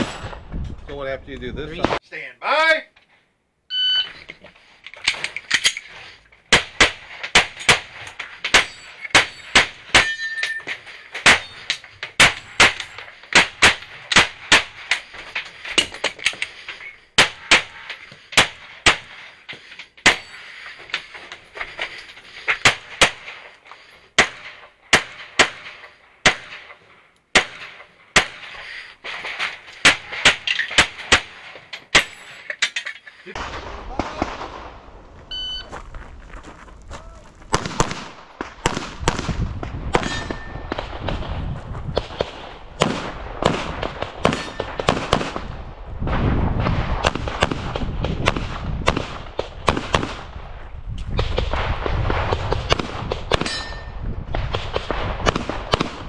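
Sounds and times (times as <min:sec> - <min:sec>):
shot timer beep: 0:03.7 - 0:04.2, 0:35.3 - 0:35.7
rapid pistol fire: 0:46.7 - 0:50.3, 0:54.4 - 0:56.0.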